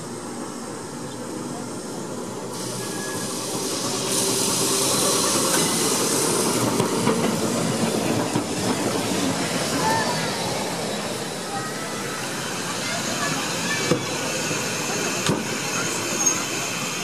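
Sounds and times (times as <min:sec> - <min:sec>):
tram rumbling past: 0:00.0 - 0:17.0
loud air hiss: 0:01.7 - 0:17.0.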